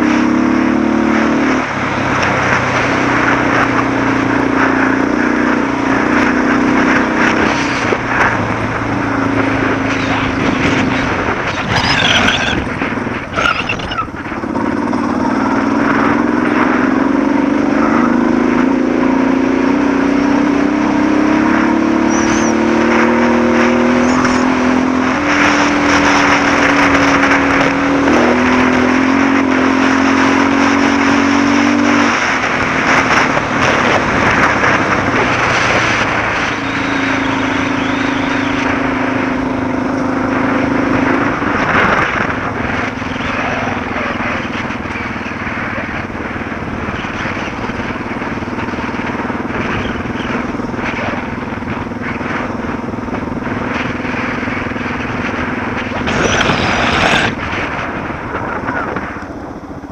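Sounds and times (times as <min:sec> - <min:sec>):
motorcycle engine running: 0:00.0 - 0:59.9
wind: 0:00.0 - 0:59.9
tyres on gravel: 0:07.4 - 0:14.6, 0:54.2 - 0:59.1.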